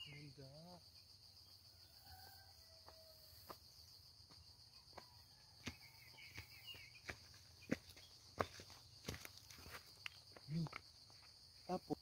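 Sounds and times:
crickets droning: 0.0s - 12.0s
footsteps on rocky dirt path: 2.8s - 11.6s.

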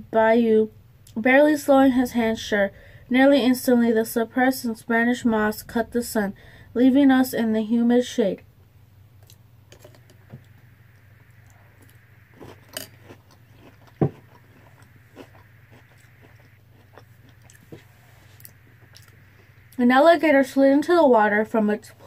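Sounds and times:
low hum: 0.0s - 22.0s
chewing crunchy cereal: 11.5s - 19.2s.

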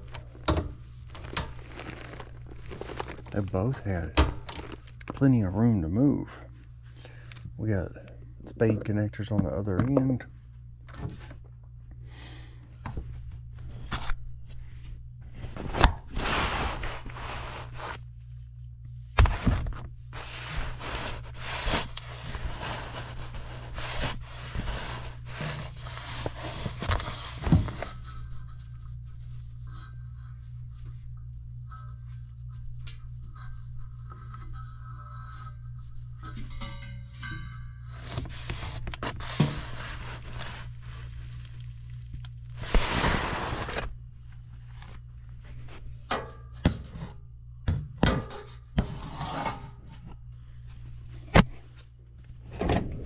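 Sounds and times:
steady low hum: 0.0s - 53.0s
hands scraping and rubbing metal: 20.2s - 28.0s.

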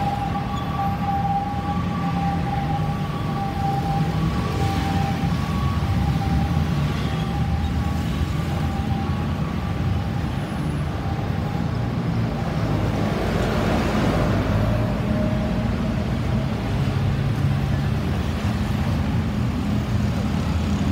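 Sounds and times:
faint two-tone siren: 0.0s - 12.2s
traffic engines rumbling: 0.0s - 20.9s.

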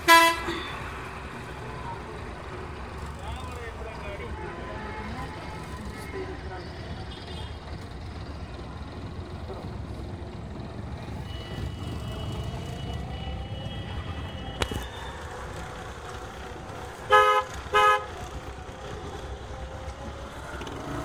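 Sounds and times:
vehicle horn toots: 0.0s - 0.8s, 11.1s - 15.1s, 17.1s - 18.1s
traffic engines rumbling: 0.0s - 21.0s.

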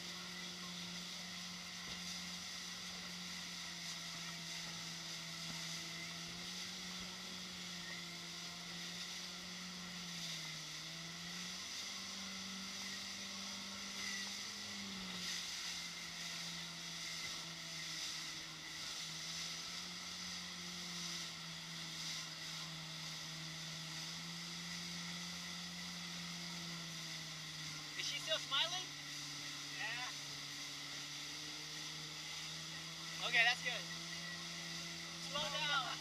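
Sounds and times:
motorboat engine running: 0.0s - 36.0s
rushing wake water: 0.0s - 36.0s
wind: 0.0s - 36.0s.

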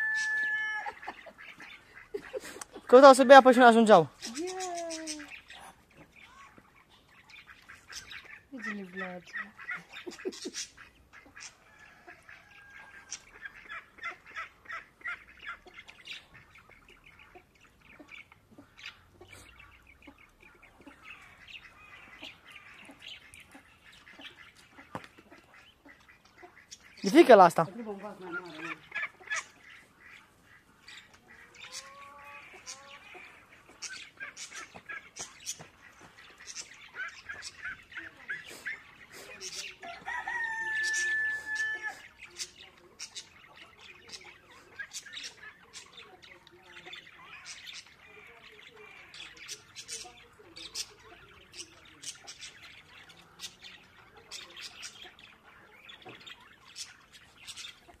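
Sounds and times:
duckling peeps: 4.1s - 27.1s, 28.2s - 40.2s.

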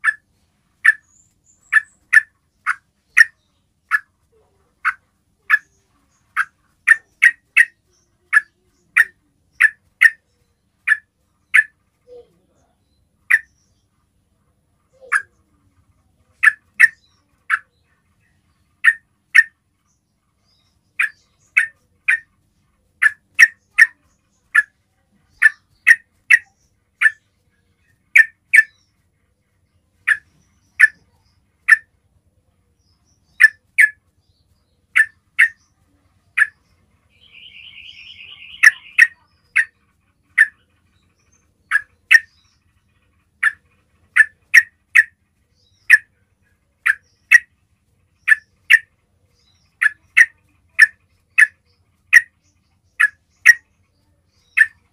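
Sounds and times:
bird rapid trill: 0.0s - 4.1s, 4.8s - 10.2s, 10.8s - 11.8s, 20.5s - 22.4s, 30.0s - 31.9s, 33.0s - 34.0s, 34.9s - 46.2s, 46.8s - 53.7s, 54.3s - 54.9s
bird chirping: 0.0s - 54.9s.

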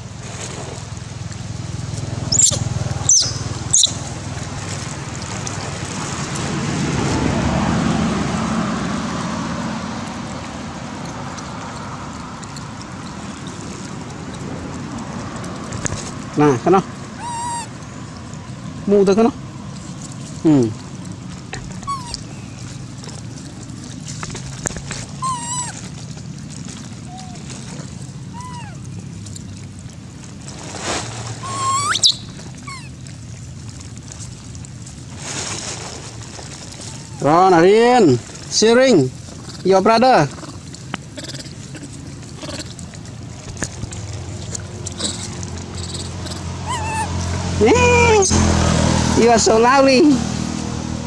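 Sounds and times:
vehicle engine hum: 0.0s - 51.0s
monkey coo calls: 2.3s - 4.0s, 17.2s - 17.8s, 21.5s - 22.5s, 25.2s - 25.8s, 27.1s - 27.5s, 28.3s - 28.9s, 31.4s - 32.9s, 41.2s - 42.7s, 44.9s - 47.2s
faint clicks and rustles: 19.7s - 31.4s.

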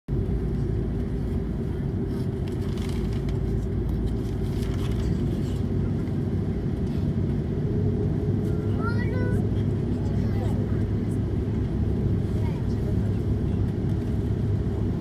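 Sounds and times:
airplane cabin engine rumble: 0.1s - 15.0s.

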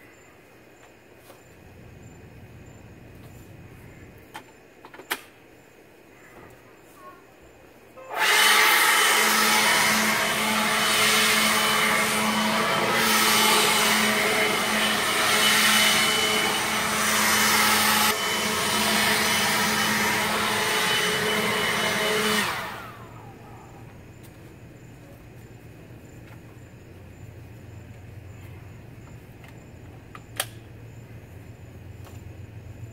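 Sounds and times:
leaf blower running: 8.0s - 23.9s.

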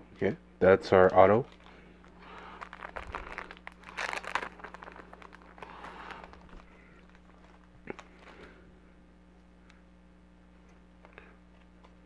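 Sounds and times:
faint steady hum: 0.0s - 12.0s
card packaging rustling: 1.5s - 8.6s.

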